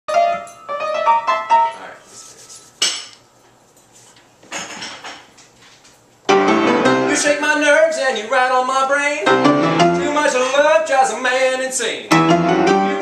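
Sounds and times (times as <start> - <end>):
high piano notes: 0.1 - 3.4, 6.3 - 7.8, 9.2 - 10.7, 12.1 - 13.0.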